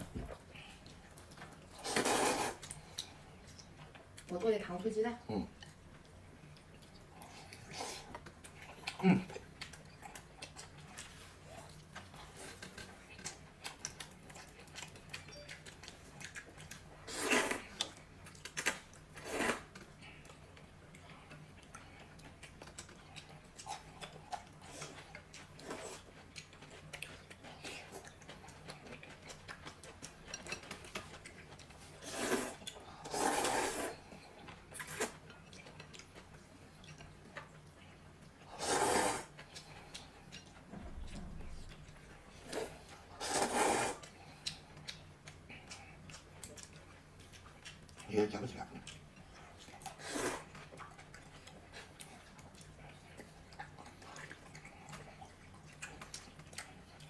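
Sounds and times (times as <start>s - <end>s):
loud noodle slurps: 1.8s - 2.6s, 17.1s - 17.6s, 19.2s - 19.6s, 32.0s - 34.0s, 38.5s - 39.3s, 42.6s - 44.0s, 50.0s - 50.5s.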